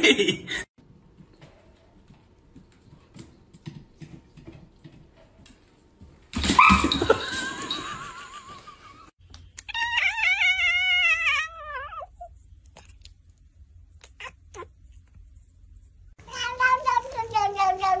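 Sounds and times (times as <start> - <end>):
cat meowing: 9.7 - 12.2.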